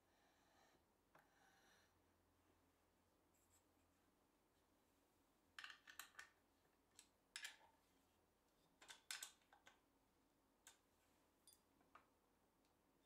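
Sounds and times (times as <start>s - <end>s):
plywood parts clicking and knocking: 5.6s - 7.7s, 8.8s - 9.8s.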